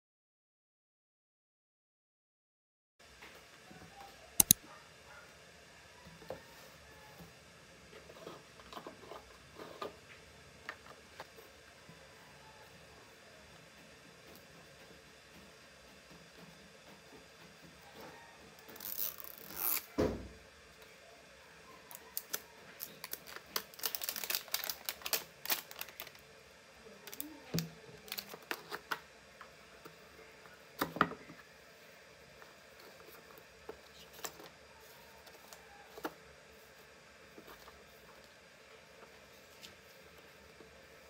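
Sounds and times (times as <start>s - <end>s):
cardboard rustling and tearing: 22.8s - 26.2s.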